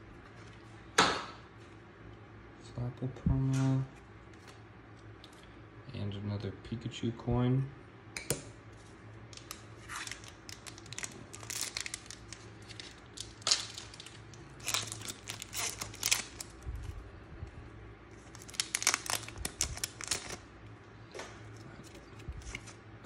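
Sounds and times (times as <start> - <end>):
foil wrapper crinkling and tearing: 9.3 - 17.0, 18.2 - 20.5, 21.5 - 22.8.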